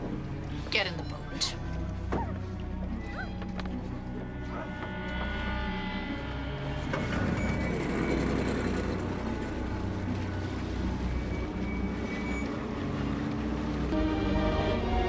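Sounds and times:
low film score: 0:00.0 - 0:15.0
motorboat engine running: 0:06.6 - 0:14.0
water wash: 0:08.6 - 0:15.0.

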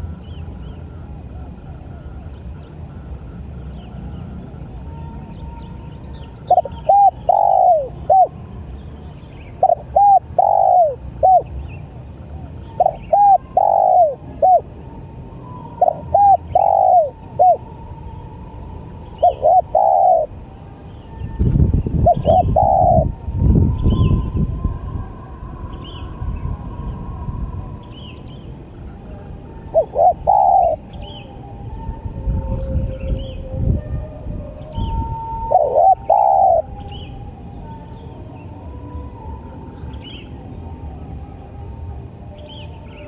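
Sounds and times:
low rumbling noise: 0:00.0 - 0:43.0
dove cooing: 0:00.7 - 0:08.4, 0:09.4 - 0:17.7, 0:19.1 - 0:20.5, 0:22.0 - 0:23.3, 0:28.9 - 0:31.4, 0:34.1 - 0:37.1.

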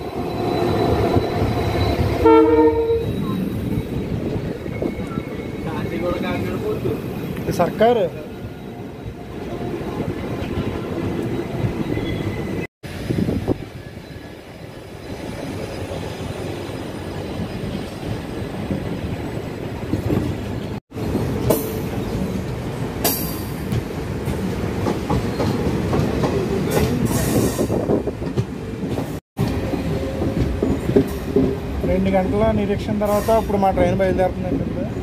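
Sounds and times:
high wheel squeals: 0:00.0 - 0:12.7
train wheels on rails: 0:00.0 - 0:34.9.

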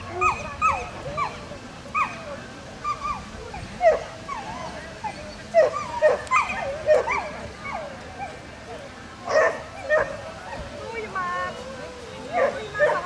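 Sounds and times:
hounds yelping and whining: 0:00.1 - 0:08.4, 0:09.3 - 0:10.7.

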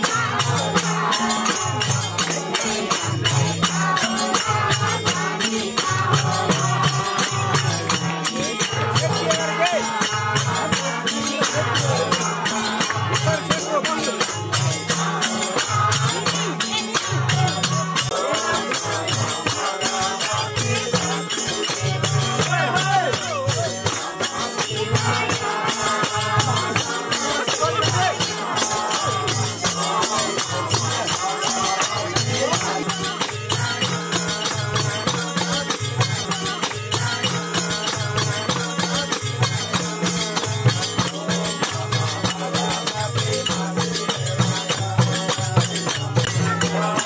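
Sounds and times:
drum beating a rhythm: 0:00.0 - 0:47.0
jingling percussion: 0:00.0 - 0:47.0
voices: 0:00.0 - 0:47.0.

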